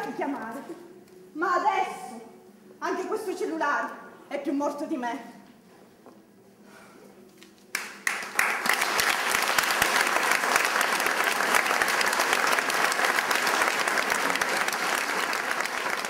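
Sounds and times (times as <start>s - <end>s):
crowd applause: 7.8s - 16.0s.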